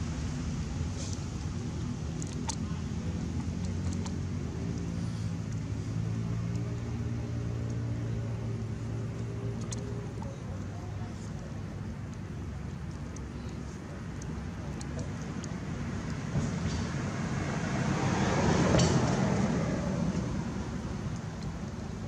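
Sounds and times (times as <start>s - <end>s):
engine humming: 0.0s - 22.0s
faint clicks: 6.3s - 17.0s.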